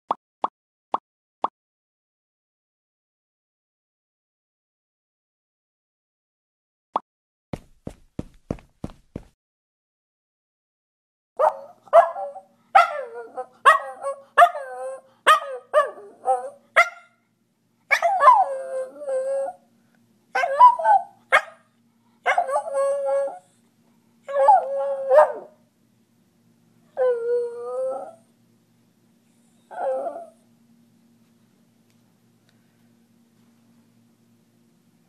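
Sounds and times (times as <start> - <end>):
dog yipping and howling: 11.4 - 17.2, 17.9 - 19.7, 20.3 - 21.6, 22.2 - 23.6, 24.3 - 25.6, 26.9 - 28.3, 29.5 - 30.5.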